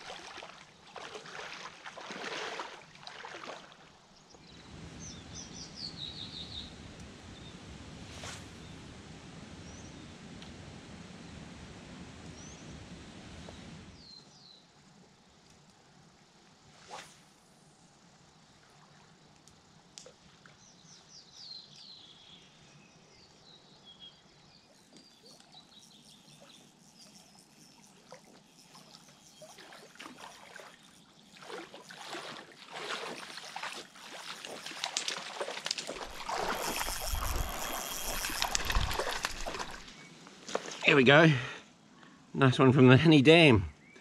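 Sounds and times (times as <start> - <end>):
wading splashes: 0.0 - 4.0, 28.0 - 41.0
fish splashing and thrashing: 27.1 - 40.8.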